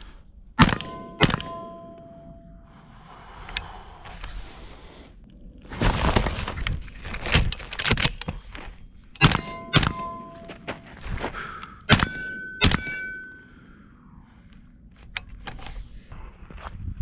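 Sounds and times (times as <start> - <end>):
steel target ringing: 0.6 - 2.7, 9.2 - 11.0, 11.8 - 13.8.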